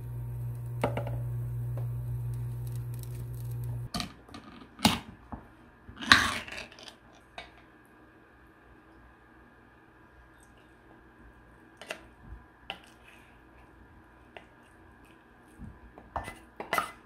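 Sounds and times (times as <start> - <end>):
induction cooktop hum: 0.0 - 4.2.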